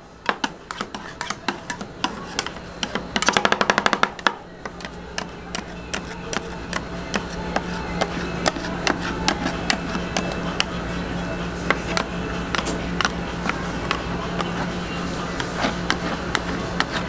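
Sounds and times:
steady low hum: 0.0s - 17.0s
metal spatulas chopping on cold plate: 0.3s - 10.8s, 15.3s - 17.0s.

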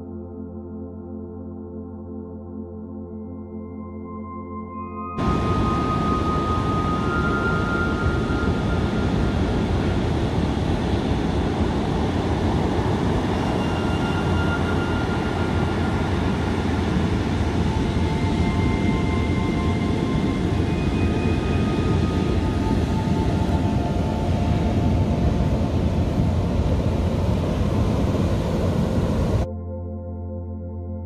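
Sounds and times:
heavy surf breaking on beach: 5.2s - 29.4s.

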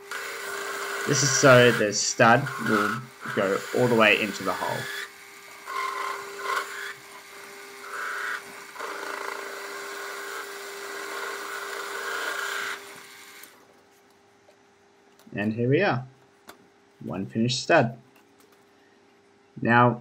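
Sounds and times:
lathe tool scraping metal: 0.0s - 13.2s
metal lathe running: 0.0s - 13.6s.

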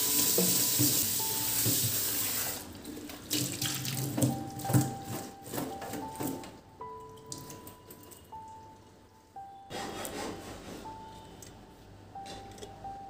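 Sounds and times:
tap water running into a sink: 0.0s - 5.0s
splashes and drips: 1.6s - 4.8s.

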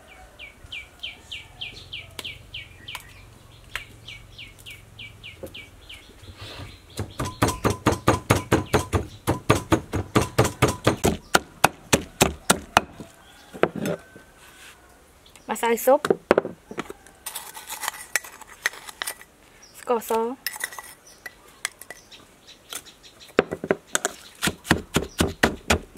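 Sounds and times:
bird chirping: 0.0s - 14.1s, 19.5s - 25.9s
pestle pounding in clay mortar: 7.0s - 13.0s, 23.4s - 25.9s.

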